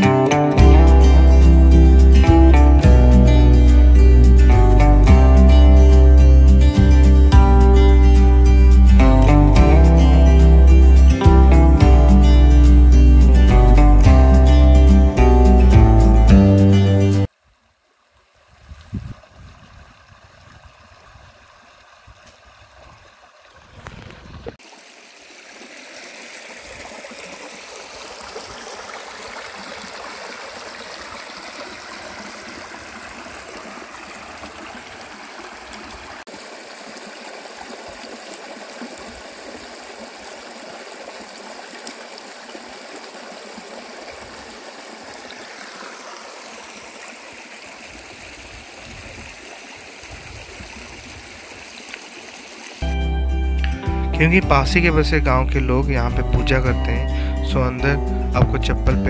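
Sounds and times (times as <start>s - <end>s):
stream gurgling over rocks: 17.2s - 52.8s.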